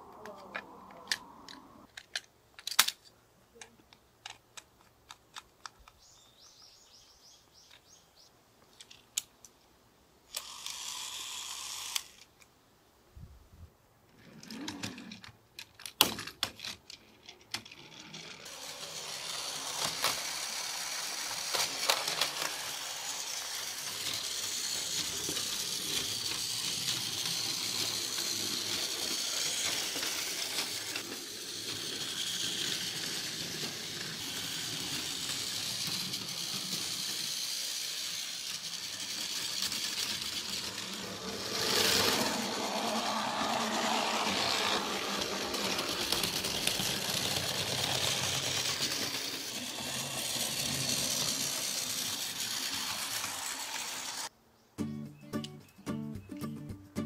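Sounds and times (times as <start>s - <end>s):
plastic clicks: 0.2s - 6.0s
toy train motor whirring: 10.3s - 12.5s, 14.3s - 54.3s.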